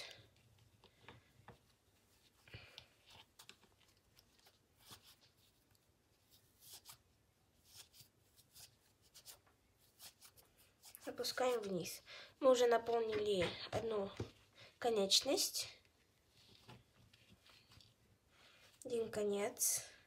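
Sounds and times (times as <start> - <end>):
fabric rustling and scratching: 1.6 - 11.9.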